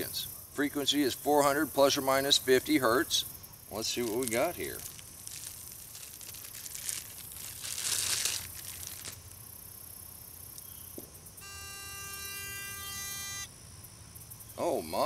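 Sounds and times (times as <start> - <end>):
packaging rustling and crinkling: 3.9 - 9.3
buzzy electronic tone: 11.4 - 13.5.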